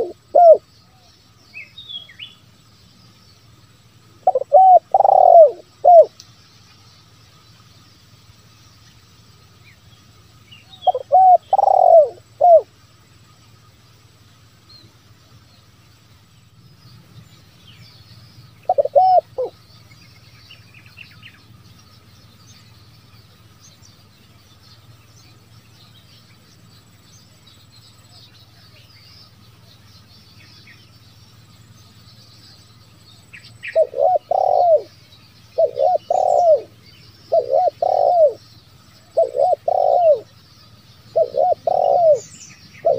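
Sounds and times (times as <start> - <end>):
dove cooing: 0.0 - 1.0, 4.2 - 6.2, 10.7 - 12.7, 18.6 - 19.6, 33.6 - 40.4, 41.1 - 42.9
small birds chirping: 0.0 - 42.9.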